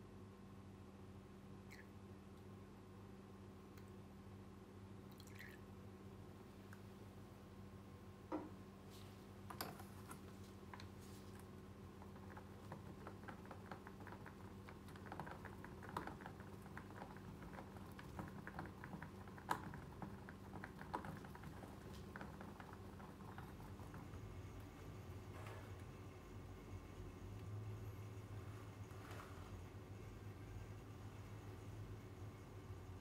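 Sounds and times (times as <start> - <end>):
low steady hum: 0.0 - 33.0
resin stirred in plastic cup: 9.6 - 24.9.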